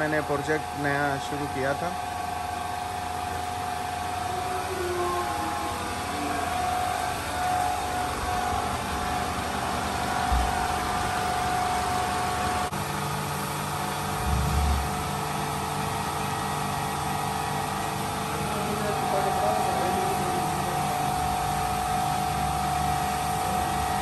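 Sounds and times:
low thumps: 14.2s - 15.1s.

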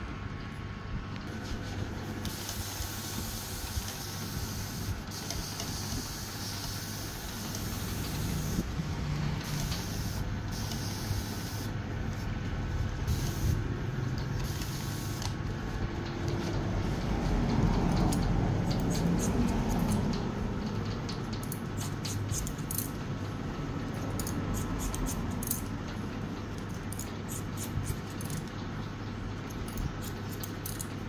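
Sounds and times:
electric hair clipper hissing: 6.9s - 8.7s.

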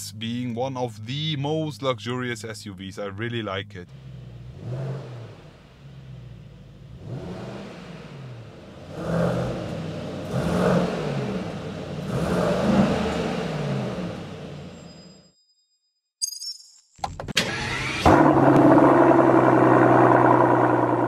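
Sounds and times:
car engine revving: 3.6s - 14.8s, 17.4s - 21.0s.

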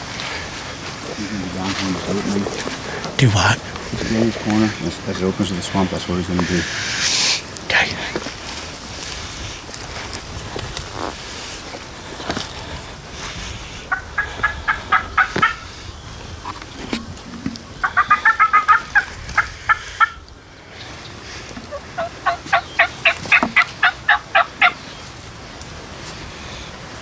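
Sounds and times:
turkey yelping: 13.9s - 15.7s, 17.8s - 20.2s, 21.6s - 24.9s.

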